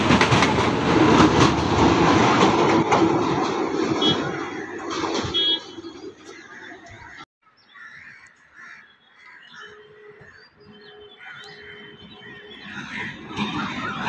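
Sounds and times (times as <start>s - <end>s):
train rumble: 0.0s - 7.2s, 10.0s - 14.0s
birds calling: 4.0s - 14.0s.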